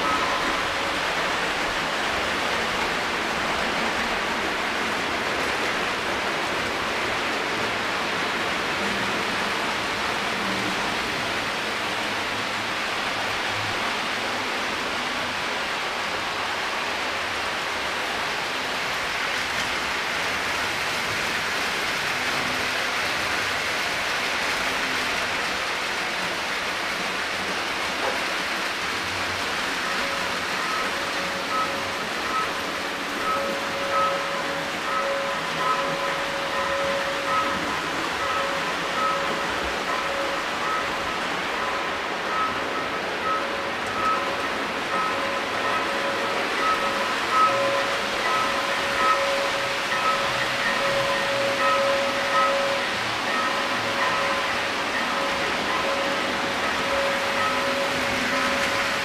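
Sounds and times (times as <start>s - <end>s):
toy train wheels rolling on rails: 18.6s - 59.0s.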